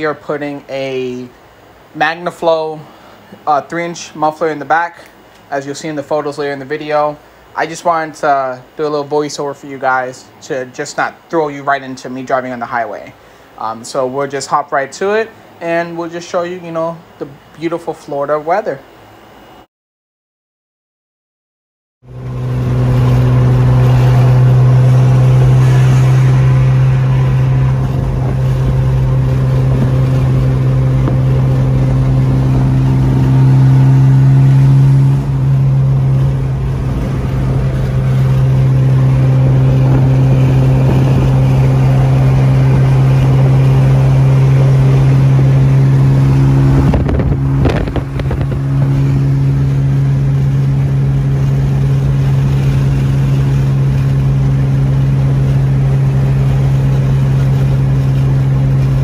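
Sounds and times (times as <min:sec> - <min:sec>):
car exhaust drone in cabin: 0:22.0 - 0:59.0.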